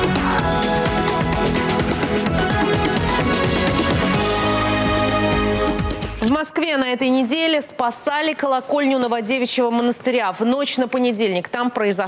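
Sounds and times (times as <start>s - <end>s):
electronic news theme music: 0.0s - 6.6s.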